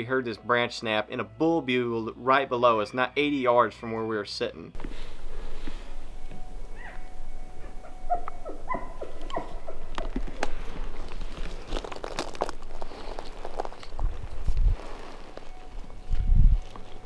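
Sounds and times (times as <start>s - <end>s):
elk calls: 6.6s - 10.6s
gear clicks and rustles: 8.8s - 17.0s.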